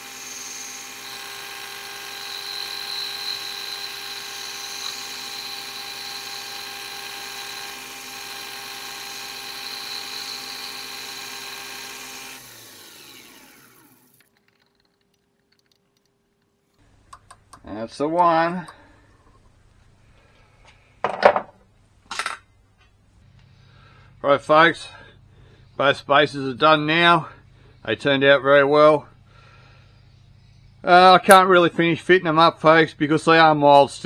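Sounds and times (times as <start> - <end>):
lathe motor whine: 0.0 - 14.6.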